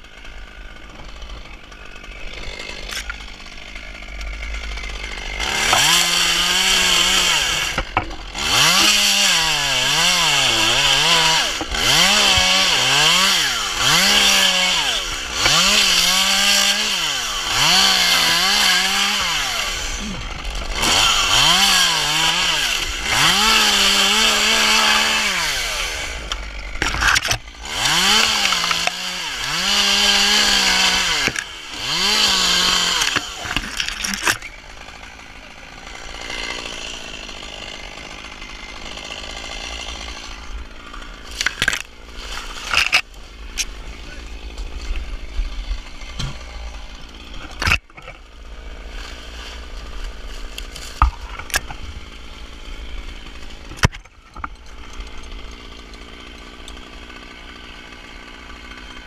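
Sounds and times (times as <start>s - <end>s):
chainsaw revving and cutting: 0.0s - 59.0s
sharp cracks: 25.5s - 45.1s
dry fronds rustling: 39.6s - 55.9s.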